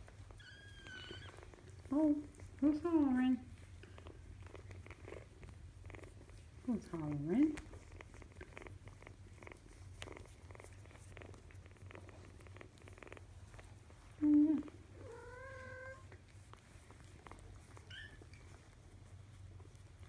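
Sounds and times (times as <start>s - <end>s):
kitten purring: 0.0s - 20.0s
kitten vocal sound: 14.2s - 16.2s.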